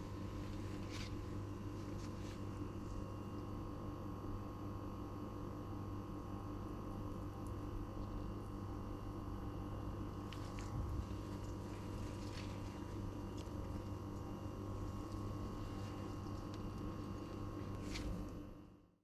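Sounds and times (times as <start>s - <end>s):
low electrical hum: 0.0s - 19.0s
faint rustling: 10.2s - 18.4s.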